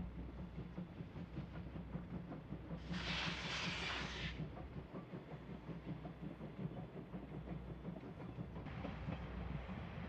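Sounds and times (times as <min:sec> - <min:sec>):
distant steam train rumbling: 0:00.0 - 0:10.0
steam hiss burst: 0:02.9 - 0:04.4.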